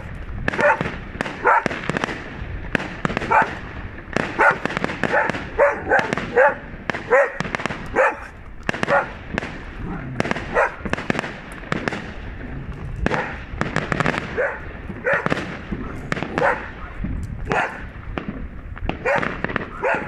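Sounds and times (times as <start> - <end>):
fireworks bangs and crackles: 0.0 - 20.0
dog barking: 0.6 - 1.7, 3.2 - 3.6, 4.3 - 9.2, 10.4 - 10.8, 13.1 - 13.4, 14.3 - 17.9, 19.0 - 20.0.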